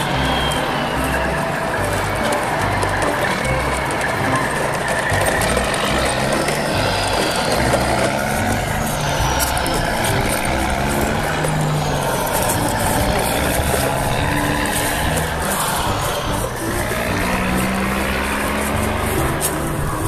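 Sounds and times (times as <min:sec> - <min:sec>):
truck engine low rumble: 0:00.0 - 0:20.0.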